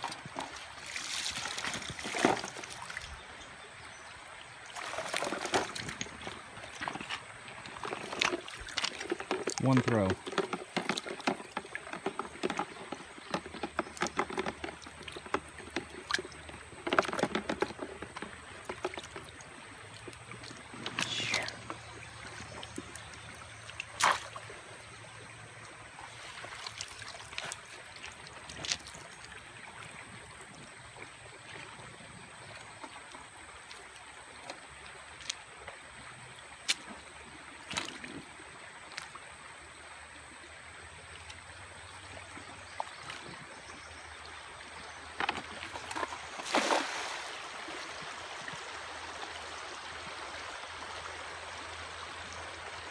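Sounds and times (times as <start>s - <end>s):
stream water trickling: 0.0s - 52.9s
water splashes: 0.0s - 52.9s
knocks and rattles: 7.8s - 19.3s.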